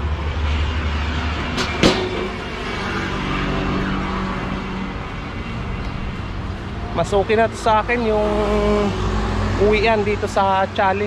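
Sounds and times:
vehicle engine humming: 0.0 - 11.0
sharp knock: 1.5 - 2.6.

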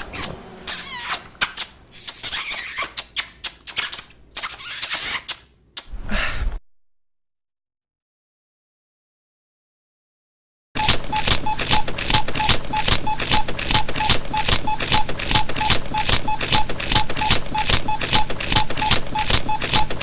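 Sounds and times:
fast ticking with short beeps: 10.8 - 20.0.

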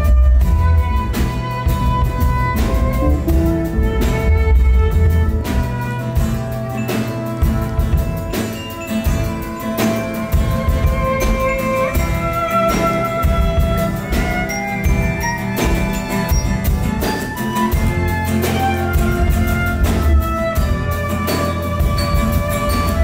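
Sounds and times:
heavy bass: 0.0 - 6.8
steady drum beat: 0.0 - 23.0
sliding melody line: 0.2 - 23.0.

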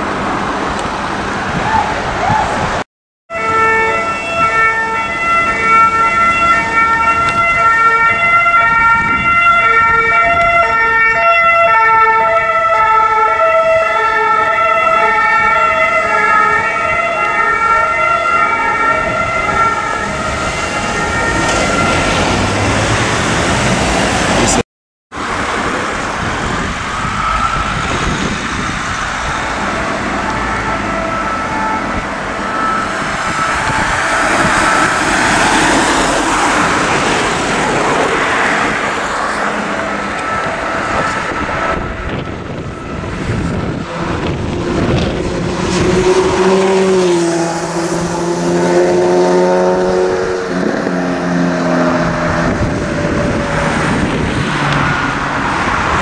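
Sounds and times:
road traffic noise: 0.0 - 56.0
two-tone emergency siren: 3.3 - 56.0.

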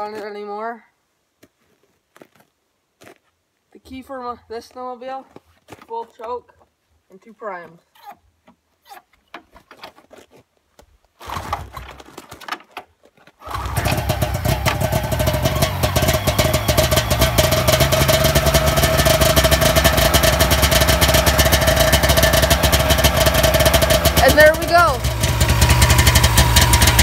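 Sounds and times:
snowmobile engine cranking: 11.2 - 12.1, 13.4 - 27.0
snowmobile engine running: 13.5 - 27.0.

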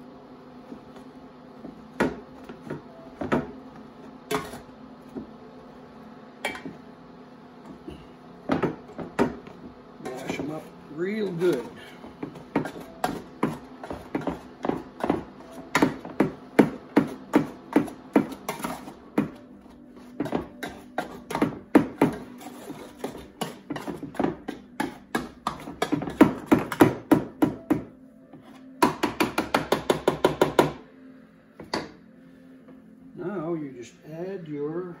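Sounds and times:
potato masher knocking metal pot: 20.2 - 27.9.

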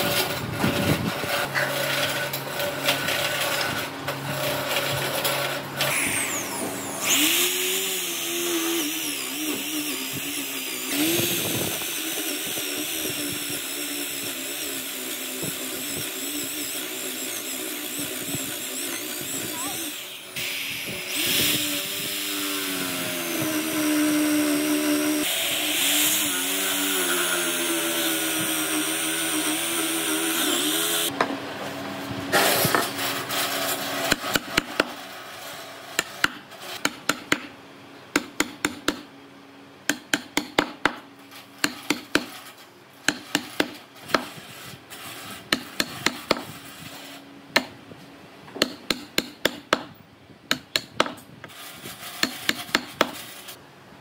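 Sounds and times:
cordless drill boring into wood: 5.8 - 31.1
chisel knocking and clicking: 48.5 - 49.9.

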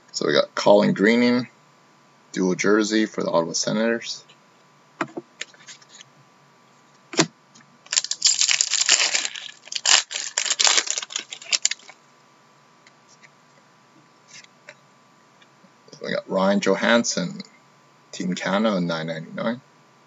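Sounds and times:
foil wrapper tearing and crinkling: 7.9 - 12.0.

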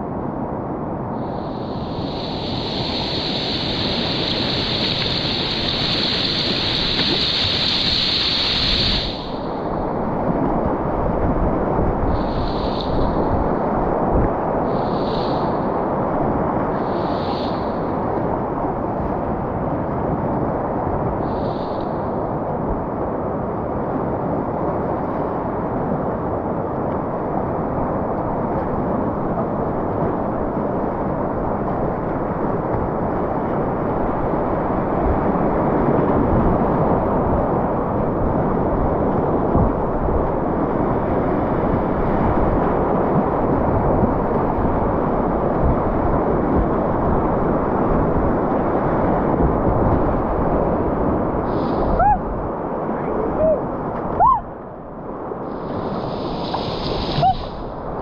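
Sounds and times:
whitewater rapids rushing: 1.7 - 19.4, 55.5 - 58.0.

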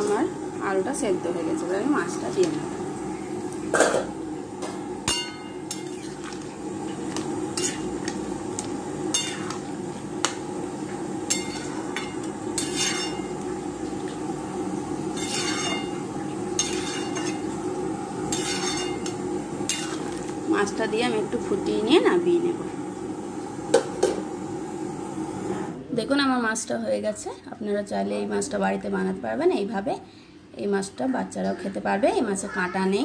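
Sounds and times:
metal spoon clinking on pot: 5.1 - 6.0, 9.1 - 9.6, 11.3 - 13.3, 15.2 - 15.9, 16.6 - 17.4, 18.3 - 20.0.

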